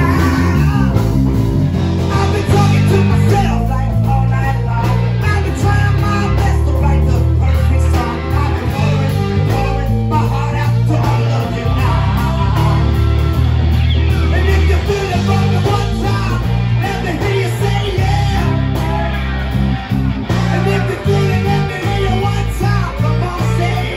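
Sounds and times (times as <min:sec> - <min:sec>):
person singing: 0:00.0 - 0:19.6, 0:20.3 - 0:23.9
bass guitar: 0:00.0 - 0:23.9
drum kit: 0:00.0 - 0:23.9
electric guitars: 0:00.0 - 0:23.9.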